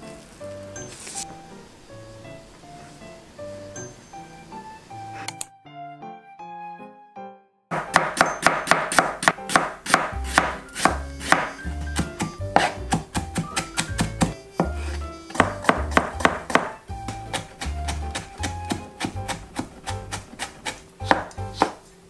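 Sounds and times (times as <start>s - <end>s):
soft background music: 0.0s - 22.0s
knife chopping on cutting board: 7.7s - 21.8s.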